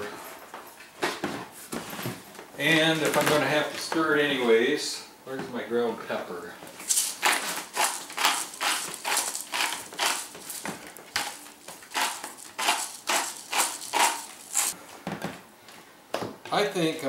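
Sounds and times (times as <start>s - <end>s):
pepper mill grinding: 6.8s - 14.8s.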